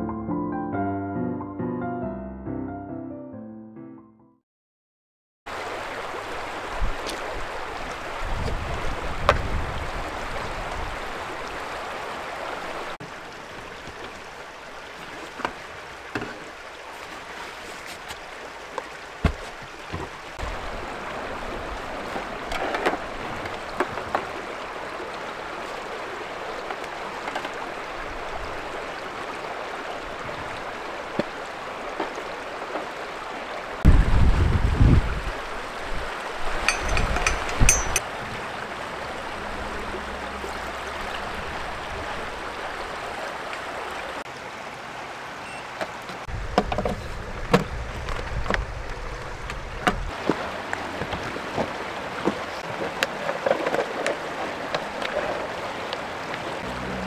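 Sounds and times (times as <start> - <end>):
stream running over stones: 5.5 - 57.0
camping gear clicks and rustles: 14.9 - 20.4, 22.0 - 24.5, 26.5 - 27.8, 36.5 - 38.1, 45.6 - 56.5.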